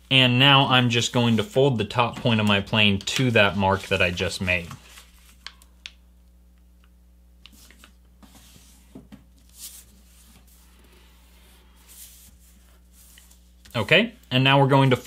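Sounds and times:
low steady hum: 0.0 - 15.0
paper rustling and sliding: 1.2 - 5.5, 7.5 - 14.0.

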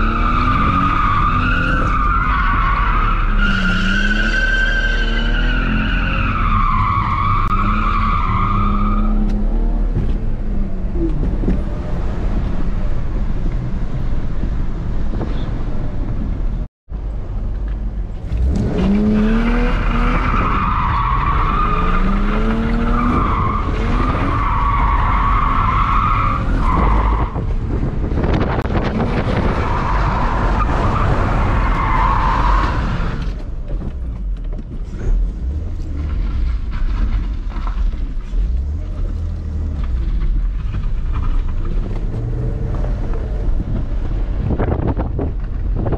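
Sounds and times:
car engine revving: 18.2 - 27.2.

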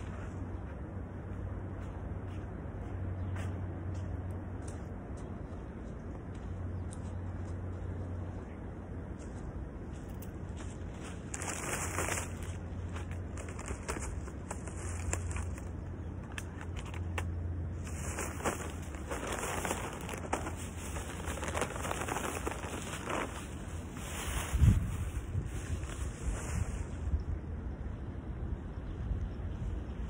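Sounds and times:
steady low hum: 0.0 - 30.0
plastic bags and tarp rustling: 11.1 - 27.0.

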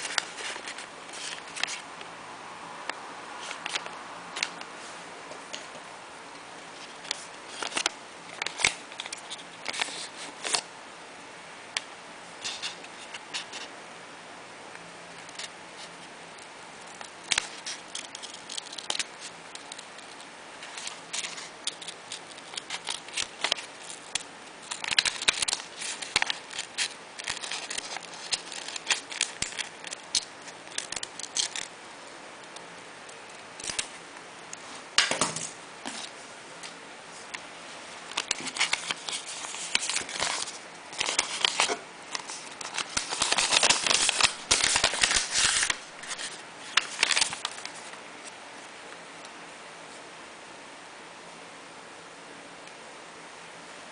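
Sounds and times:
paper rustling: 0.0 - 1.8, 6.8 - 10.6, 16.8 - 31.7, 38.1 - 48.0
scissors snipping paper: 38.2 - 47.6.

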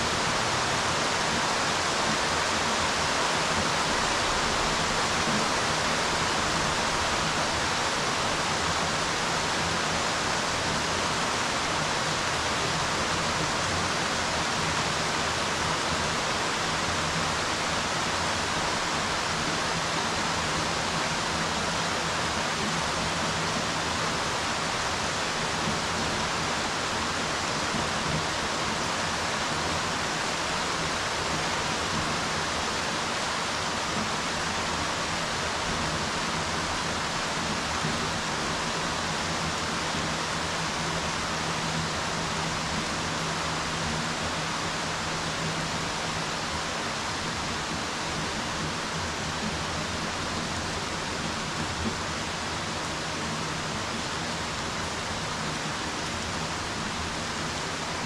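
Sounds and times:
rain falling on water: 0.0 - 58.0.

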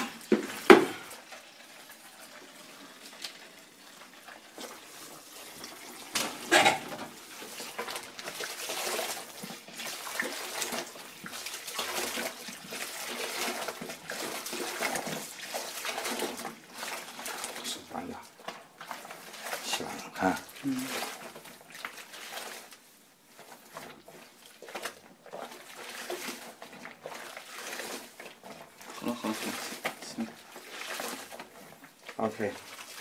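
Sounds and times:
tap water running into sink: 0.0 - 33.0
towel scrubbed in suds: 7.2 - 33.0.

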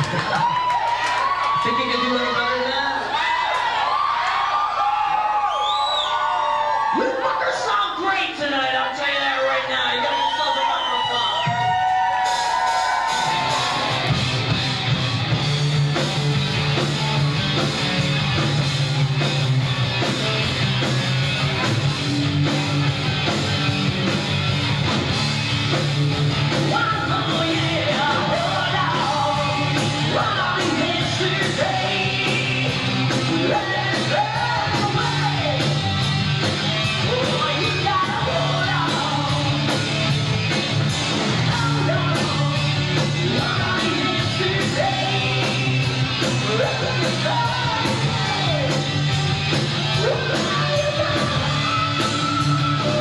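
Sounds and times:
rock band playing live: 10.9 - 53.0
person singing: 26.6 - 35.7, 37.0 - 39.8, 41.4 - 48.9, 49.8 - 53.0.

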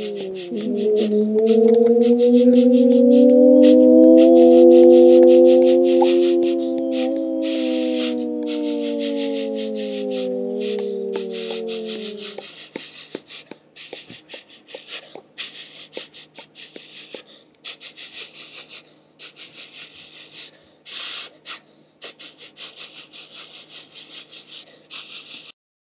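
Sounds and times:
voice making breathy p sounds: 0.0 - 14.2.

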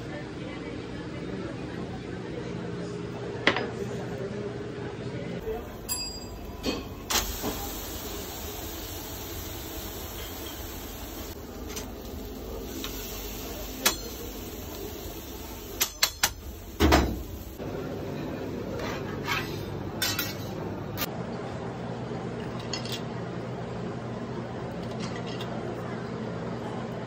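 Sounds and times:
metal utensils clattering on grill grate: 19.4 - 20.6.

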